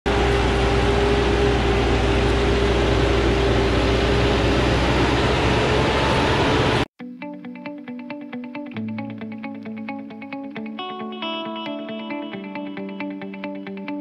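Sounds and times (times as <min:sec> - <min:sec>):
diesel truck engine under load: 0:00.1 - 0:06.9.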